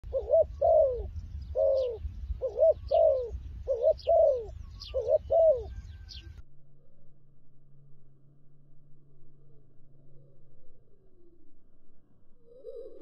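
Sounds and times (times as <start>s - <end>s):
dove cooing: 0.0s - 6.3s, 12.4s - 13.0s
small birds chirping: 0.1s - 6.4s.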